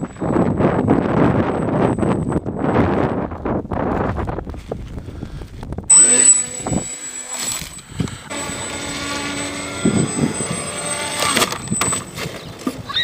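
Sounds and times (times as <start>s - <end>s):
electric motor and propeller whine: 0.0s - 3.2s, 5.9s - 13.0s.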